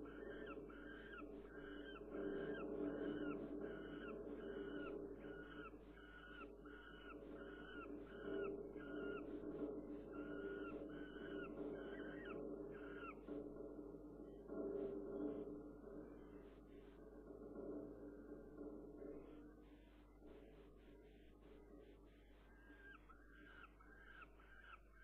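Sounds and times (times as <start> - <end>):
falcon calling: 0.0 - 9.3, 10.1 - 13.2.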